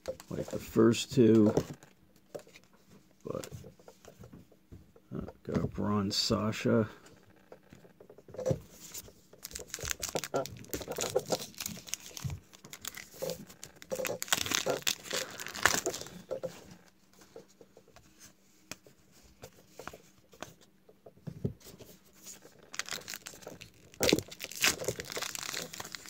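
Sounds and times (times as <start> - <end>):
cards being handled: 8.8 - 16.3
plastic wrappers crinkling and tearing: 8.9 - 16.4, 22.3 - 26.0.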